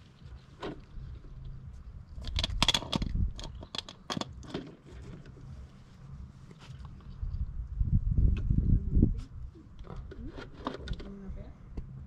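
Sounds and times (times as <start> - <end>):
hand tools clicking and clinking: 2.2 - 4.8.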